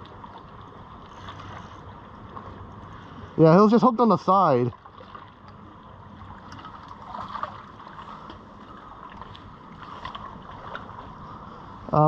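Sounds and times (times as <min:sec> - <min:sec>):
water washing around piles: 0:06.5 - 0:08.4.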